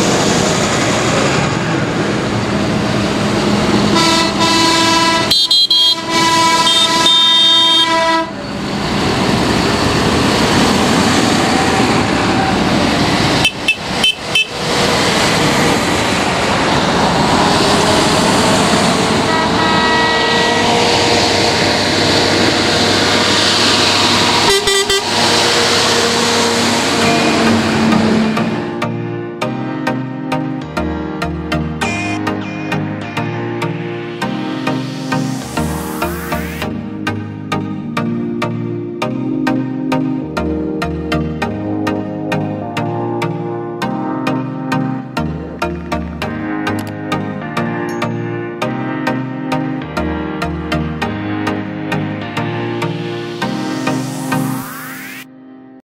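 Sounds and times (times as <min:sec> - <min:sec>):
tractor engines running: 0:00.0 - 0:29.2
long horn sounding: 0:03.7 - 0:08.6, 0:13.4 - 0:14.8, 0:17.5 - 0:29.0, 0:31.8 - 0:33.3
short stuttering horn toots: 0:03.9 - 0:08.4, 0:18.8 - 0:23.4, 0:24.0 - 0:28.5, 0:31.8 - 0:32.8.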